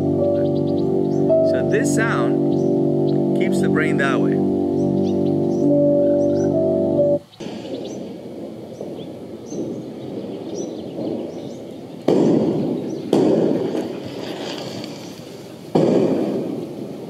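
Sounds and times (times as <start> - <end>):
fireworks crackling: 7.3 - 17.0
loud firework booms: 7.4 - 14.8, 15.7 - 17.0.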